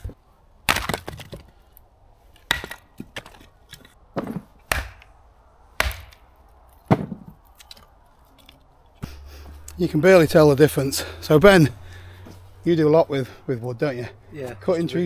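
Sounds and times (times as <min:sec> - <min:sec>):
hatchet chopping firewood: 0:00.0 - 0:01.5, 0:02.3 - 0:05.1, 0:05.8 - 0:07.8.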